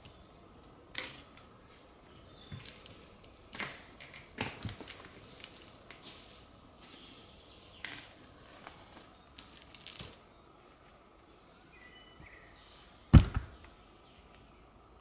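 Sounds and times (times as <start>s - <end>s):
heavy thud: 13.1s - 13.6s.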